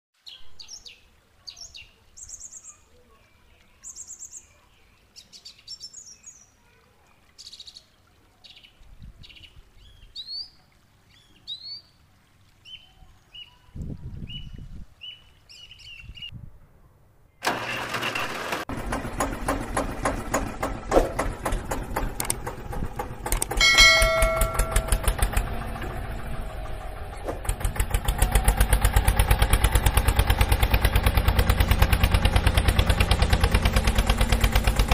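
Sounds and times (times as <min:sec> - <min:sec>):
birds chirping and singing: 0:12.7 - 0:16.3
tractor engine running: 0:17.4 - 0:34.9
brief steady tone: 0:23.6 - 0:25.2.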